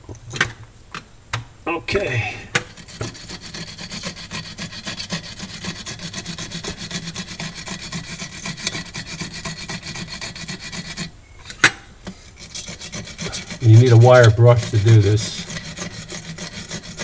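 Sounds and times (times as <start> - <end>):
wire brush scrubbing metal: 2.5 - 11.1, 12.1 - 17.0.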